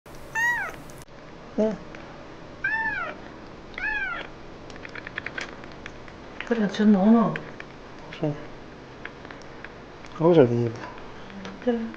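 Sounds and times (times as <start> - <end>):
kitten meowing: 0.2 - 1.0, 2.6 - 3.2, 3.8 - 4.3.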